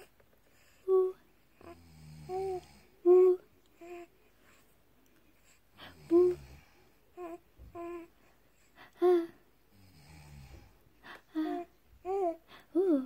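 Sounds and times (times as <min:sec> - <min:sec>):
baby cooing: 0:07.2 - 0:08.1.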